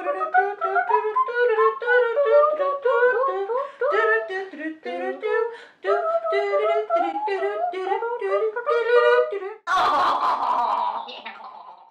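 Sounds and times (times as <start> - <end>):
women singing wordless tune: 0.0 - 9.7.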